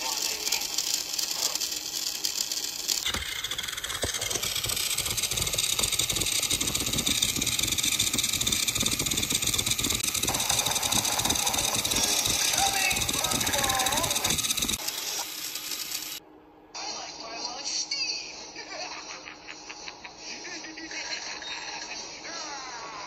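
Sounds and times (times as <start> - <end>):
gears and wheels rattling: 0.0 - 16.2
toy train motor whirring: 0.0 - 16.2.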